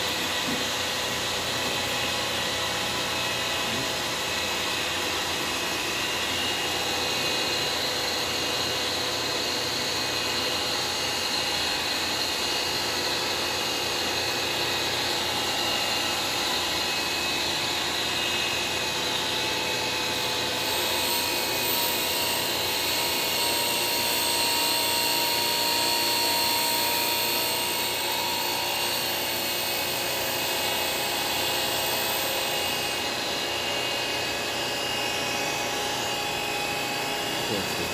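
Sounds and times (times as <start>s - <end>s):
surface grinder whine: 0.0s - 37.9s.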